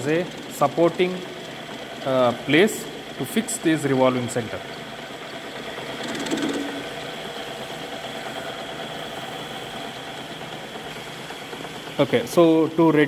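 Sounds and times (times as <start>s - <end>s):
lathe humming: 0.0s - 13.0s
fast even clicking: 5.9s - 6.9s.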